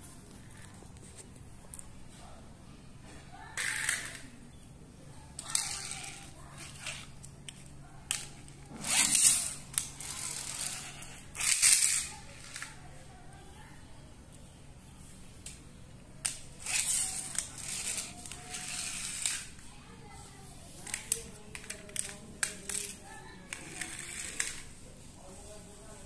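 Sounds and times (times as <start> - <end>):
toy trucks rolling on tile: 3.5 - 4.4, 5.4 - 13.0, 16.2 - 19.7, 20.8 - 25.4.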